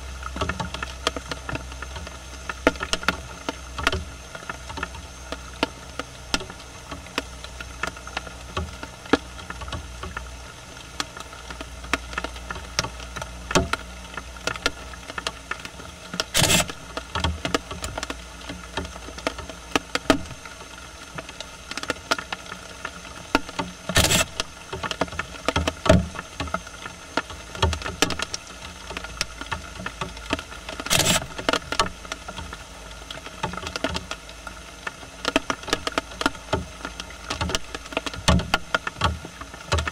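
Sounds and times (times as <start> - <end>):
rustling in dry leaves: 12.4 - 39.6.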